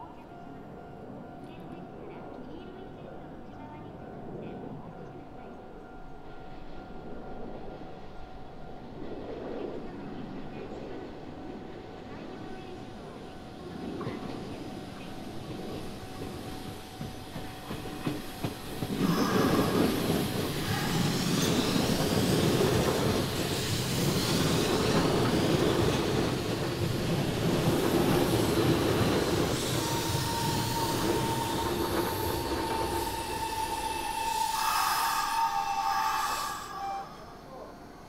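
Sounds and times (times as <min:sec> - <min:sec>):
electric train running: 0:14.8 - 0:38.0
steady high squeal: 0:19.0 - 0:38.0.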